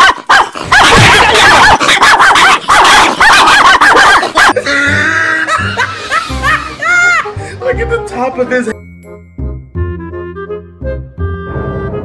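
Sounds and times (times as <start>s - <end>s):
dog barking rapidly: 0.0s - 4.6s.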